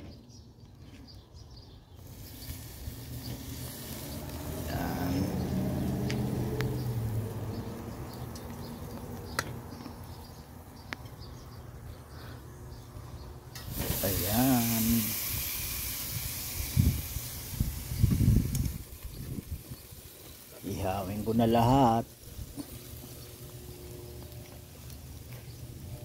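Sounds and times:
faint hiss: 2.0s - 5.8s, 13.6s - 23.2s
low drone: 2.2s - 8.4s.

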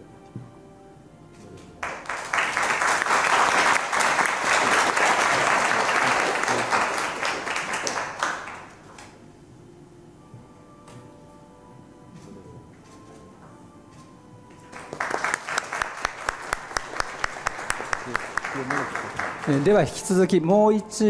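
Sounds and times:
faint background music: 0.0s - 6.7s, 8.8s - 21.0s
audience applauding: 1.8s - 9.0s, 14.6s - 20.3s.

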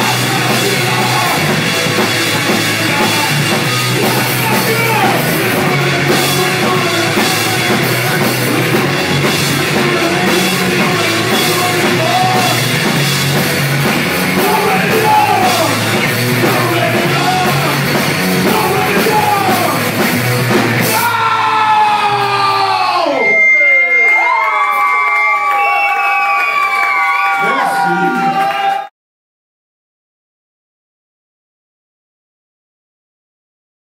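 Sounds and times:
shouted lead vocal: 0.0s - 20.1s, 20.7s - 23.6s, 26.5s - 28.8s
drum kit: 0.0s - 23.6s
electric guitar: 0.0s - 24.1s
bass guitar: 0.0s - 24.4s
crowd cheering: 0.0s - 28.9s.

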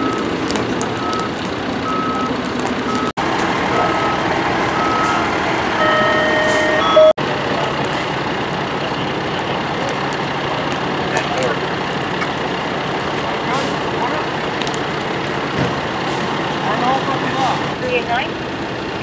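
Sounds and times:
truck engine running: 0.0s - 19.0s
back-up alarm beeping: 3.8s - 4.2s, 4.8s - 5.2s, 5.8s - 7.2s.

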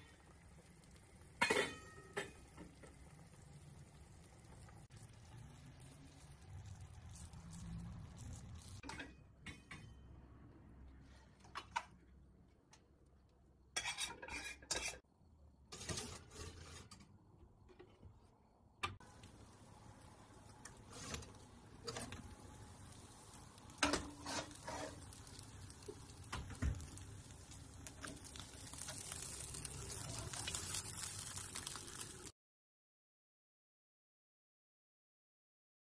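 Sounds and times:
pot and utensils clattering: 1.2s - 3.0s, 8.8s - 10.0s, 13.8s - 15.0s, 23.7s - 27.0s.

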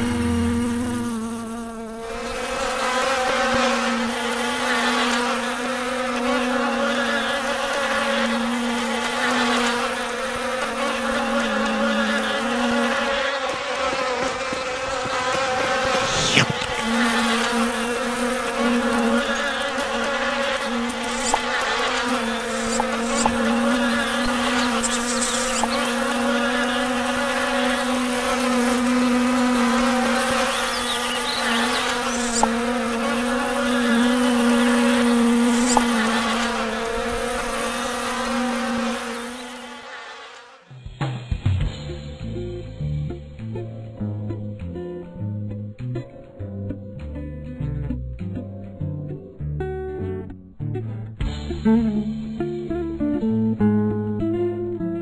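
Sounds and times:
fly buzzing: 0.0s - 40.7s
short sharp sound: 15.3s - 16.9s.

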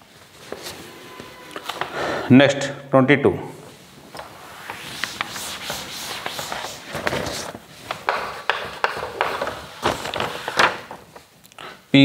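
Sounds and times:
cloth swishing on chalkboard: 3.7s - 10.5s
chalk tapping and scratching: 4.6s - 9.8s.

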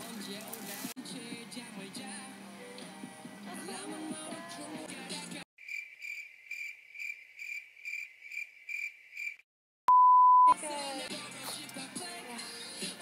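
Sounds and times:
music: 0.0s - 5.4s, 10.5s - 13.0s
cricket chirping: 5.6s - 9.4s
loud steady bleep tone: 9.9s - 10.6s.

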